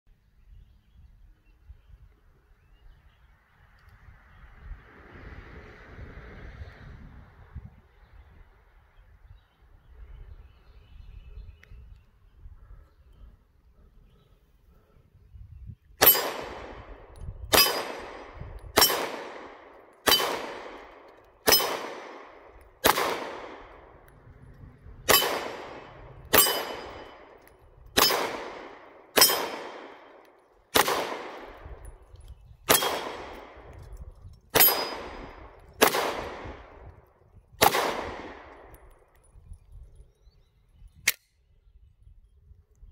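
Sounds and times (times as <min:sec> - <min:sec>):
pistol shots: 0:16.0 - 0:24.1, 0:25.1 - 0:32.0, 0:32.7 - 0:33.9, 0:34.5 - 0:37.0, 0:37.6 - 0:38.9
steel plate ringing clang: 0:26.4 - 0:27.2, 0:29.2 - 0:29.6, 0:34.6 - 0:35.2.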